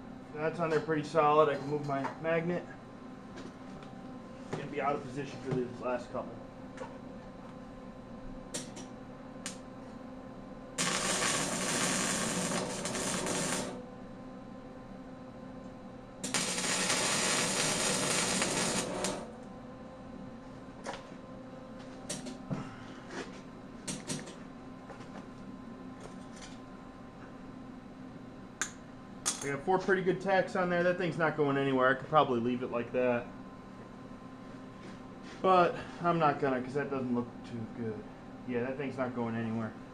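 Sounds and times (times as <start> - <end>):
welding arc crackling: 10.8 - 13.8, 16.2 - 19.4.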